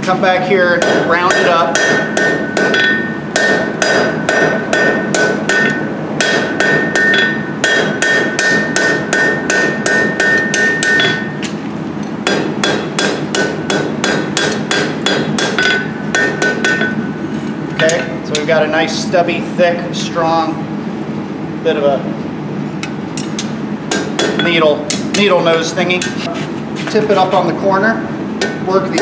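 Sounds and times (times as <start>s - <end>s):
hammer striking hot steel on anvil: 0.6s - 11.6s, 12.2s - 17.2s, 22.8s - 26.2s, 28.4s - 29.0s
anvil ringing: 0.8s - 11.5s, 12.2s - 17.2s, 23.3s - 25.4s.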